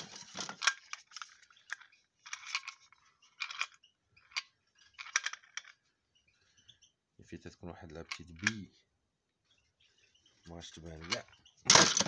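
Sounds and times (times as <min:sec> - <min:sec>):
plastic bird drinkers clattering: 0:00.0 - 0:05.8, 0:10.6 - 0:12.0.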